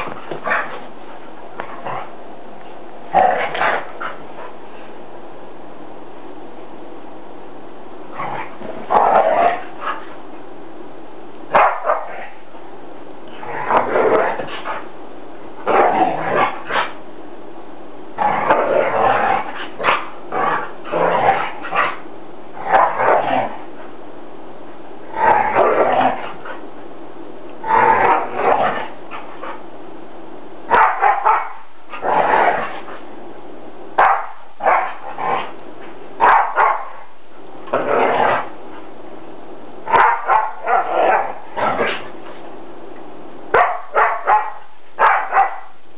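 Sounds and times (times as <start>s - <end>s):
dogs growling: 0.0s - 5.0s, 8.1s - 10.5s, 13.2s - 14.9s, 15.6s - 17.0s, 18.2s - 24.0s, 25.0s - 26.8s, 27.6s - 29.7s, 30.7s - 33.1s, 34.0s - 38.9s, 39.9s - 42.5s
dogs barking: 11.5s - 12.4s, 30.7s - 31.7s, 34.0s - 35.0s, 36.2s - 37.1s, 39.9s - 42.0s, 43.5s - 45.8s.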